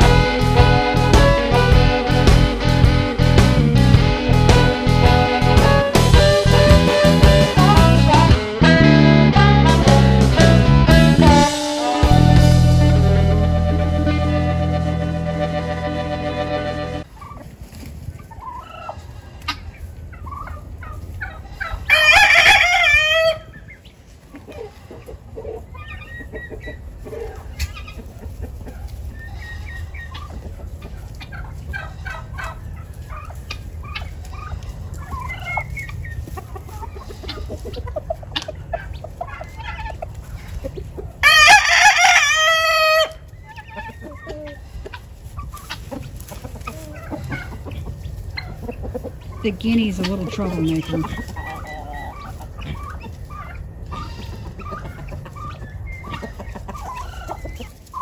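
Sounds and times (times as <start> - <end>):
chickens clucking: 0.0 - 58.0
rooster crowing: 21.9 - 23.5, 41.2 - 43.2.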